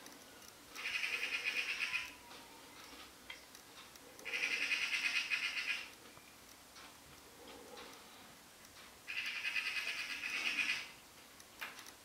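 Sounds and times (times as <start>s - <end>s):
magpie rattling chatter: 0.8s - 2.2s, 4.2s - 5.9s, 9.1s - 11.0s.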